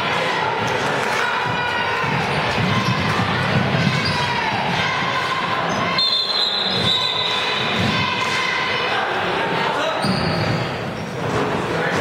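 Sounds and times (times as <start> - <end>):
crowd noise: 0.0 - 12.0
basketball bouncing: 1.5 - 4.3
sneakers squeaking: 1.5 - 4.5, 5.6 - 8.1, 9.8 - 11.6.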